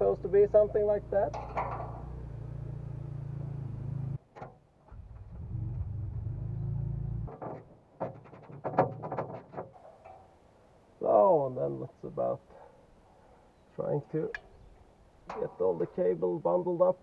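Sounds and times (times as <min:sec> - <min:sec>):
low steady hum: 0:00.0 - 0:04.2, 0:04.9 - 0:07.3.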